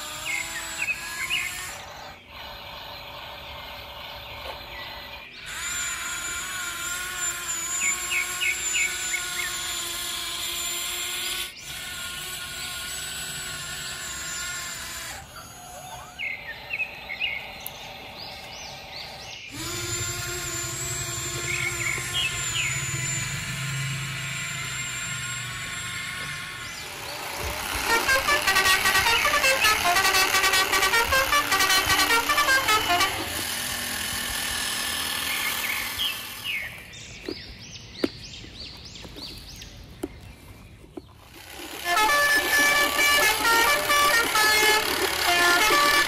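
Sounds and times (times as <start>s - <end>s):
electronic toy truck horn honks: 5.5s - 9.7s, 19.5s - 34.1s, 41.4s - 46.0s
short rising chirps: 19.5s - 26.2s.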